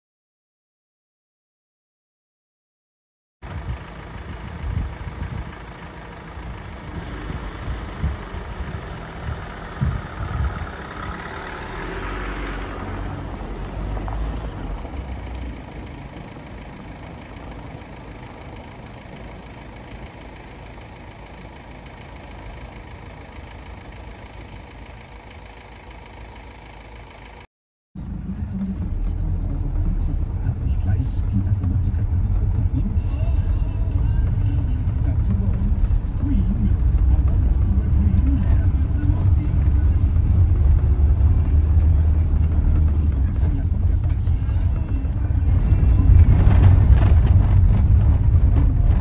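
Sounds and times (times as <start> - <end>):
van engine idling: 3.4 - 49.0
low thumps: 6.5 - 11.1, 45.6 - 49.0.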